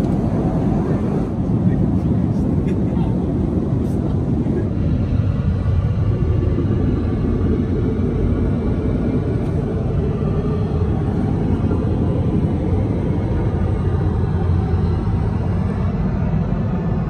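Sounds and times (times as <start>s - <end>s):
jet engines and airflow roar: 0.0s - 17.0s.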